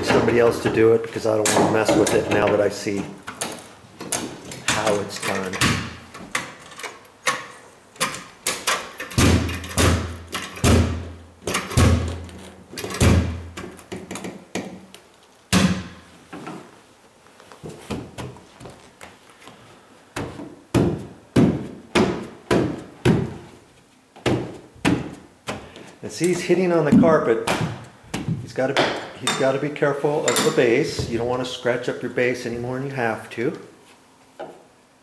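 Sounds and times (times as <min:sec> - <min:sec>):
carpet knee kicker thuds: 0:26.9 - 0:29.0.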